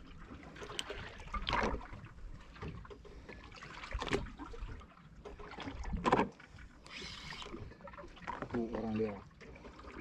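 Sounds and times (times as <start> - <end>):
water lapping against boat hull: 0.0 - 10.0.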